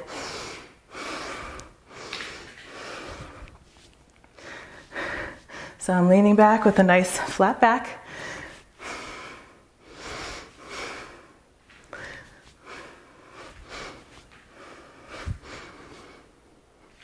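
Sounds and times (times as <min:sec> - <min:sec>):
woman breathing hard: 0:00.0 - 0:03.6, 0:04.4 - 0:05.8, 0:08.0 - 0:16.4.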